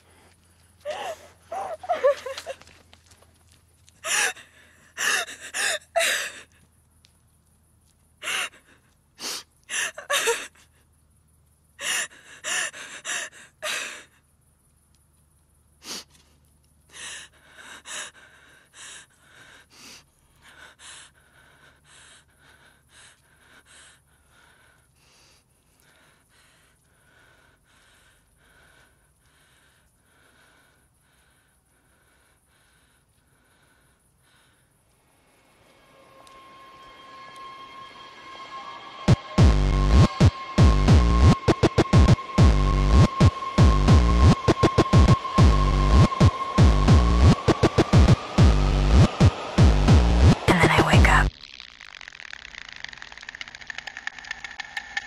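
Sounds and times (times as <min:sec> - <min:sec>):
woman sobbing: 0:00.8 - 0:02.7, 0:04.0 - 0:06.5, 0:09.7 - 0:10.6.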